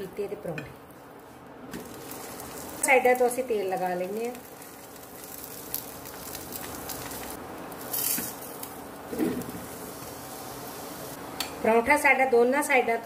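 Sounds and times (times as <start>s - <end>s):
flatbread sizzling on a hot pan: 0.9s - 11.2s.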